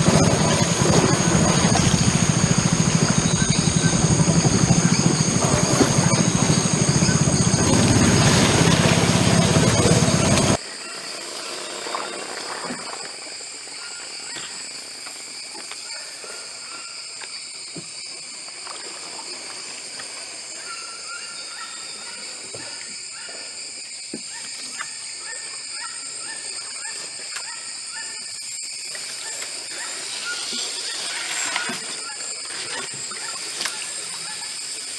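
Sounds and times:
high-pitched insect chorus: 0:00.0 - 0:34.9
water splashes: 0:04.6 - 0:10.6.

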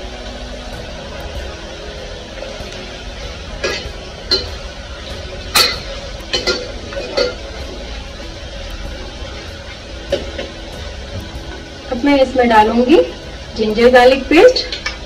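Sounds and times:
onions frying: 0:00.0 - 0:15.0
utensil scraping metal pot: 0:03.6 - 0:04.8.

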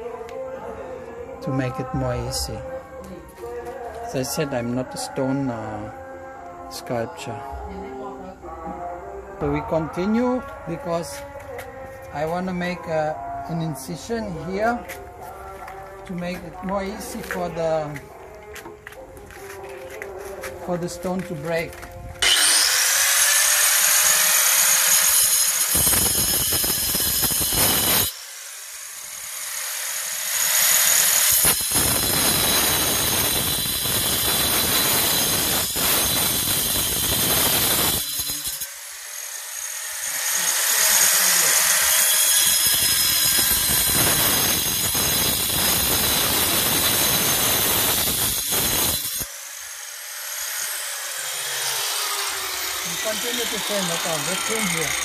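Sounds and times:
grinder grinding stone: 0:14.6 - 0:55.0
angle grinder whining: 0:20.8 - 0:55.0.

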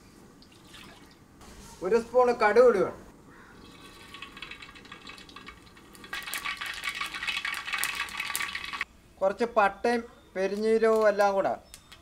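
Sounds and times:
mustard seeds sizzling and popping: 0:03.6 - 0:08.9.

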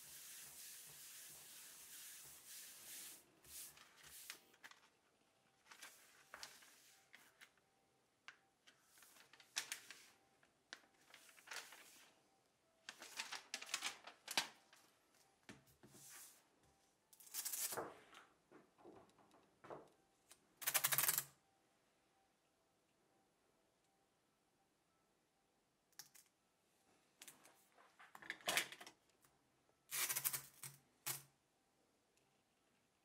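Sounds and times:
plastic sheet crinkling and rustling: 0:05.6 - 0:07.4, 0:08.9 - 0:10.2, 0:10.9 - 0:12.1, 0:12.9 - 0:14.8.

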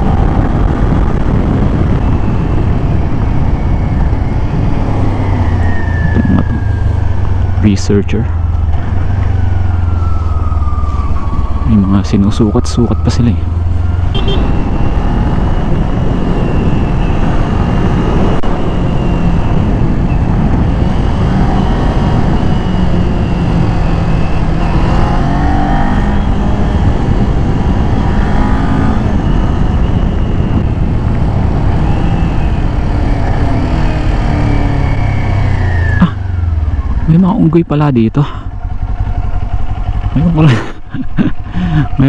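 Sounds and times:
wind rush on microphone: 0:00.0 - 0:37.3
motorcycle engine running: 0:13.4 - 0:42.0.

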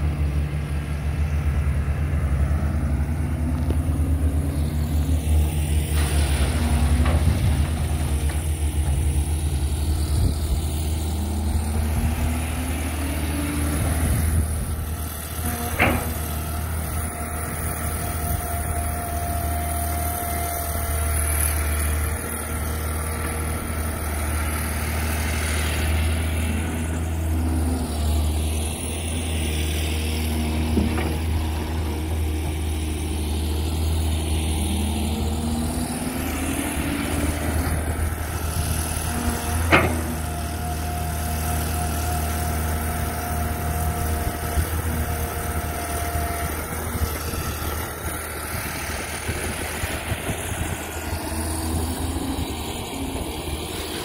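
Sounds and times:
excavator engine hum: 0:00.0 - 0:54.0
hydraulic whine: 0:02.3 - 0:54.0.

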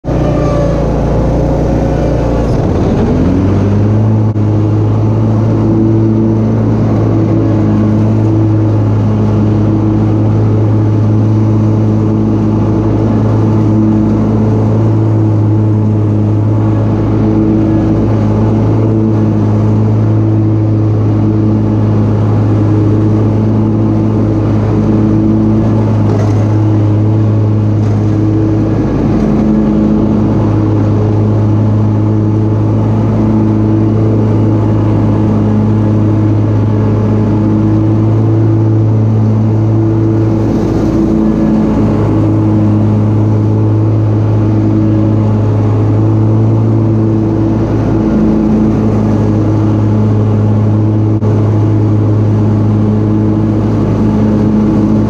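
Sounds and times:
mower engine running at high speed: 0:00.0 - 0:55.0
mower mulching leaves: 0:00.0 - 0:55.0.

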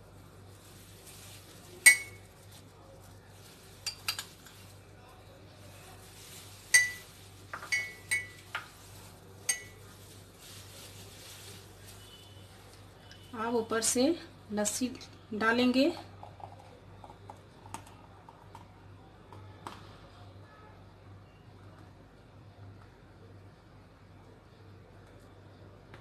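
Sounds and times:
spoon clinking against glass mug: 0:01.8 - 0:02.2, 0:06.7 - 0:07.0, 0:07.6 - 0:08.7, 0:09.5 - 0:09.8.

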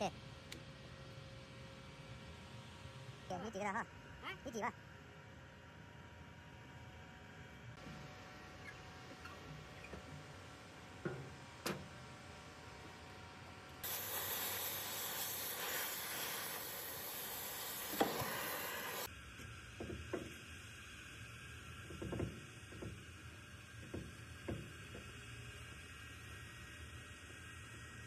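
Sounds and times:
torch jet hissing: 0:13.8 - 0:19.1.

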